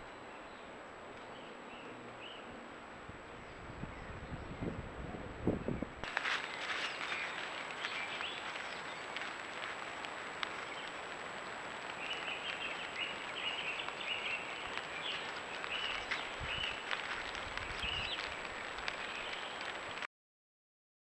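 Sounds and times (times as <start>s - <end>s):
small birds chirping: 5.7s - 20.0s
steady hiss: 6.0s - 20.1s.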